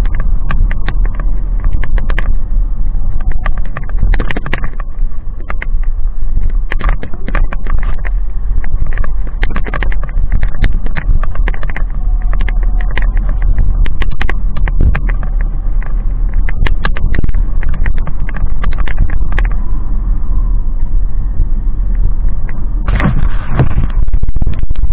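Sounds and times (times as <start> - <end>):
motorcycle engine rumble: 0.0 - 24.9
rush of noise: 0.0 - 24.9
wind on microphone: 0.0 - 24.9.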